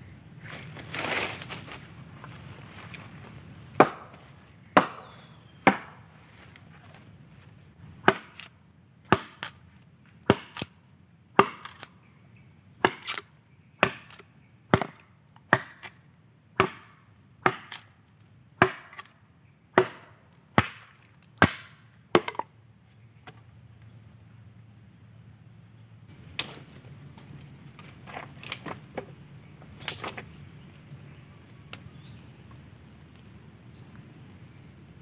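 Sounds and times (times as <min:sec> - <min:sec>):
high insect chorus: 0:00.0 - 0:35.0
machete chopping wood: 0:03.8 - 0:06.1, 0:08.0 - 0:08.5, 0:09.1 - 0:09.6, 0:10.2 - 0:11.9, 0:12.8 - 0:16.0, 0:16.6 - 0:18.0, 0:18.6 - 0:22.5, 0:26.3 - 0:30.3.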